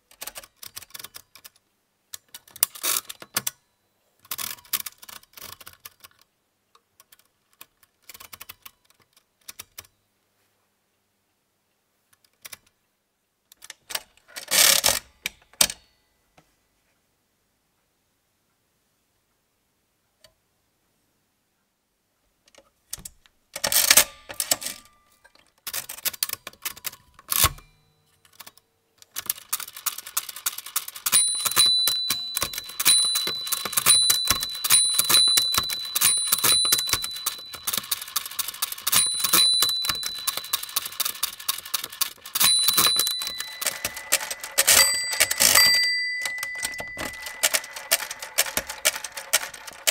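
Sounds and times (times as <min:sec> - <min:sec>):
mechanical calculator clicking: 0:04.3 - 0:06.2, 0:07.1 - 0:09.9, 0:23.6 - 0:24.9, 0:25.6 - 0:27.7, 0:28.3 - 0:49.9
crank turning with rapid clicking: 0:29.2 - 0:49.9
small bell ringing: 0:31.1 - 0:41.4, 0:42.3 - 0:49.9.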